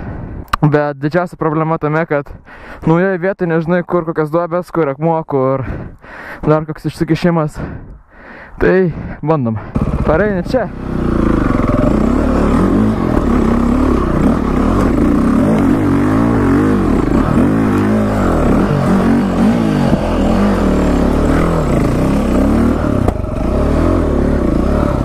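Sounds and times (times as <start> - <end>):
dirt bike engine revving: 9.6 - 25.0.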